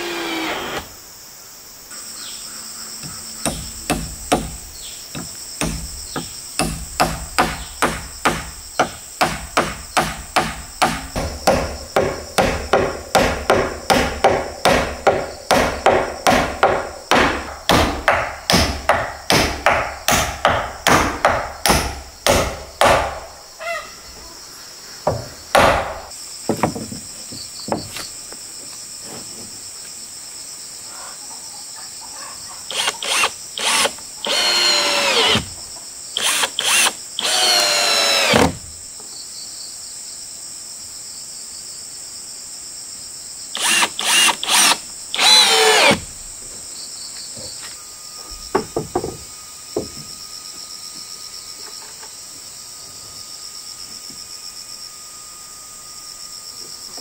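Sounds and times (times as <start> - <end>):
power tool whining: 0.0 - 1.0, 32.7 - 35.6, 36.2 - 38.7, 43.6 - 46.1
insects trilling: 0.0 - 57.0
sharp knocks: 3.0 - 23.3, 25.0 - 28.0, 48.4 - 49.2.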